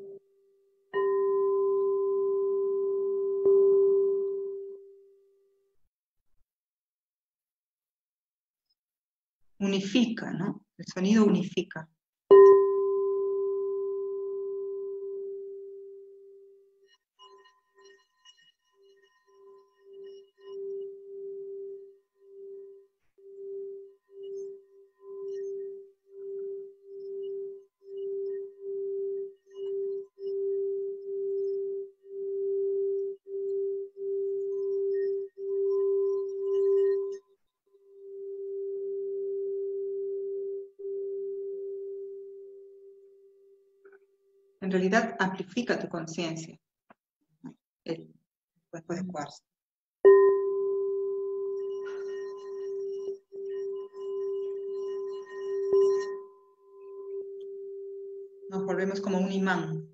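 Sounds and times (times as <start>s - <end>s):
singing bowl tone: 0.0s - 0.3s, 0.9s - 5.3s, 12.3s - 43.7s, 50.1s - 59.9s.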